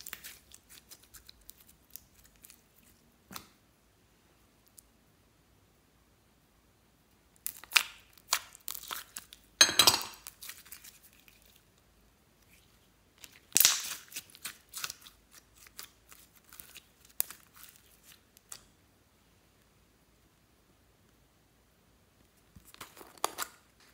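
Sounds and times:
slime crackling and popping: 7.3 - 9.6, 13.2 - 18.7.

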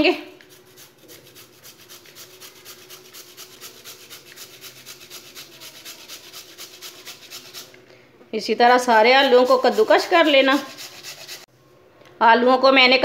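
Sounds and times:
potato rasping on grater: 0.4 - 7.8, 8.6 - 11.5.

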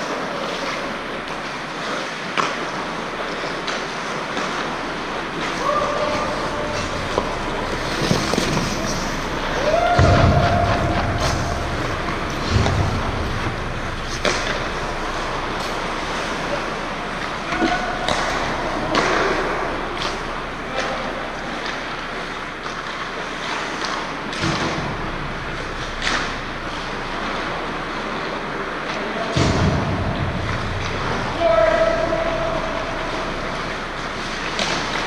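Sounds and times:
skates scraping on ice: 0.0 - 29.2
hockey sticks and puck clacking: 0.0 - 35.0
player shouting: 5.6 - 6.8, 9.5 - 11.7.

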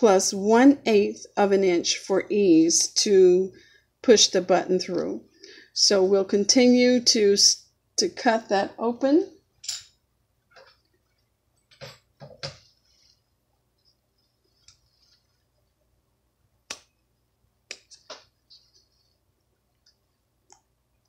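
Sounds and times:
faint fabric rustles: 12.6 - 15.9.

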